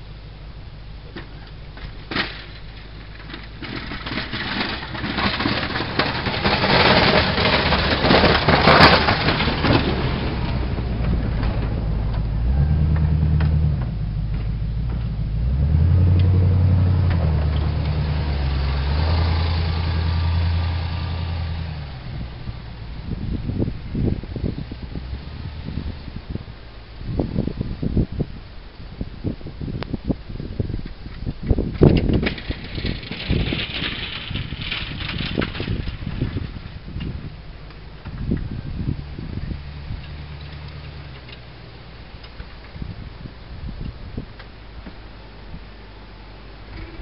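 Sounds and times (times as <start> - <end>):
engine droning under load: 0.0 - 30.7, 32.3 - 47.0
rushing crunching snow: 1.8 - 28.1, 30.6 - 41.2.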